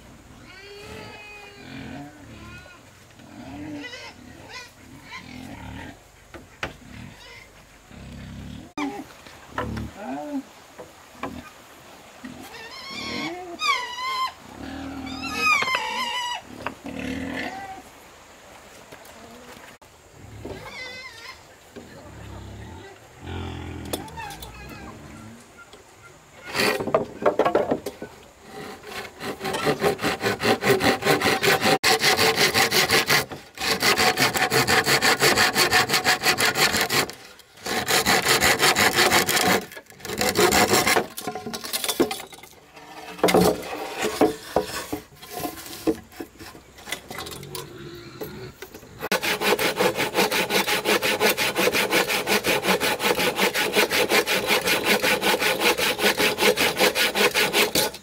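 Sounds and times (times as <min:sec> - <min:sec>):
wood being sawn by hand: 0:26.4 - 0:41.6, 0:43.0 - 0:46.8, 0:49.0 - 0:58.0.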